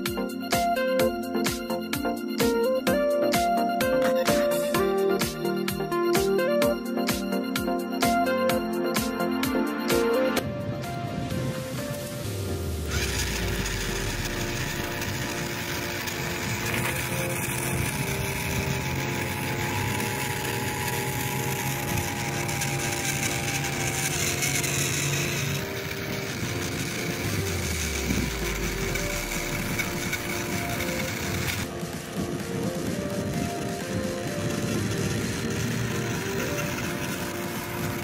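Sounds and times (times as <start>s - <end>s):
small electric motor whirring: 9.9s - 38.0s.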